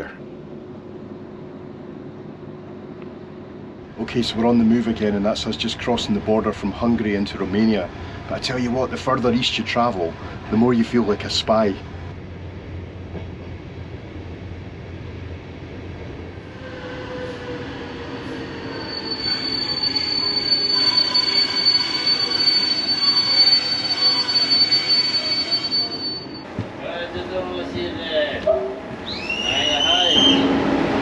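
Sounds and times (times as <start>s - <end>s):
train running noise: 0.0s - 31.0s
high-pitched metallic squeal: 16.6s - 26.4s.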